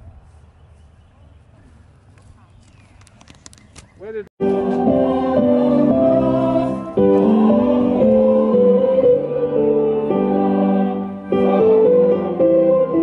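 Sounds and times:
slow held keyboard chords: 0:04.4 - 0:13.0.

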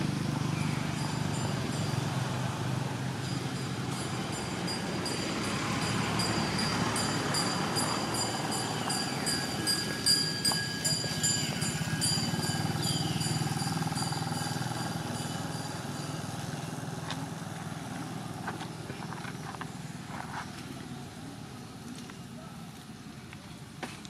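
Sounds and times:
motorbike engine passing: 0:00.0 - 0:20.2.

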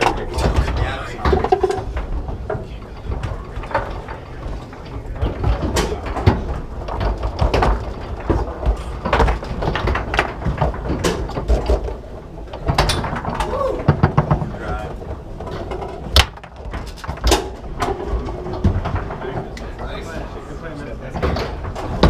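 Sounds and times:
foosball ball being struck: 0:15.7 - 0:18.8.

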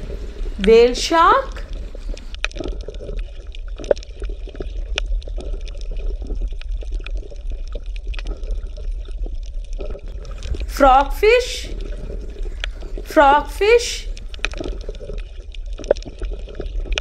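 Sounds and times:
low hum: 0:00.0 - 0:02.4, 0:10.0 - 0:15.6
water bubbling and gurgling: 0:00.0 - 0:17.0.

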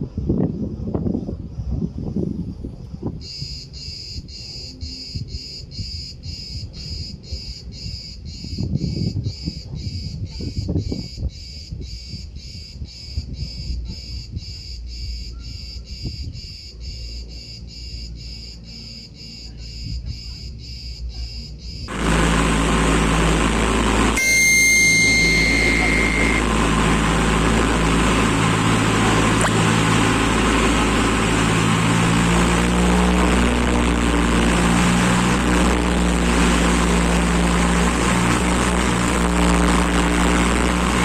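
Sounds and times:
aircraft cabin engine noise: 0:21.3 - 0:41.0
low uneven rumble: 0:21.9 - 0:41.0.

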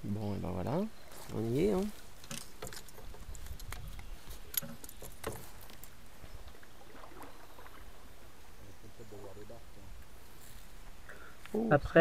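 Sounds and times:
wind rumble on microphone: 0:03.0 - 0:04.4.

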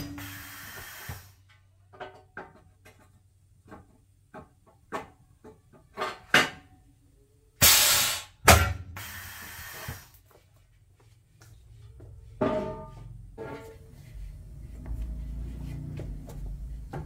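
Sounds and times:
air hiss from cylinder: 0:00.0 - 0:01.4, 0:07.6 - 0:08.4, 0:09.0 - 0:10.2.

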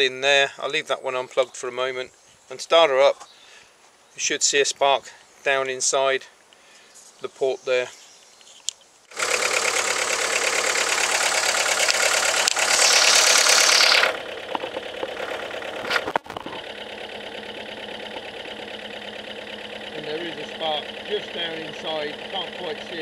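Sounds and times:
car engine starting and idling: 0:09.1 - 0:23.0.

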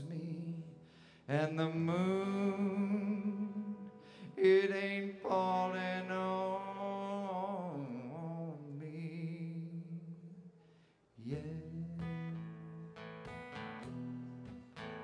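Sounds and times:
man singing long notes with vibrato: 0:00.0 - 0:10.5.

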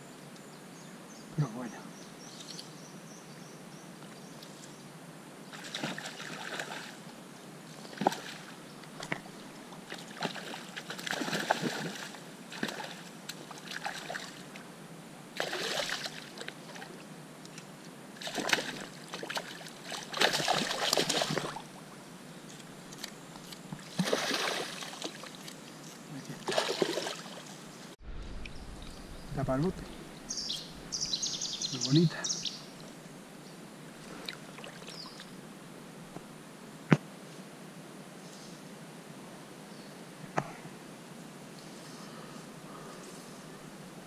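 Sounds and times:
fish splashing in water: 0:09.9 - 0:14.4, 0:15.4 - 0:16.9, 0:18.2 - 0:21.6, 0:23.9 - 0:25.5, 0:26.4 - 0:27.5.

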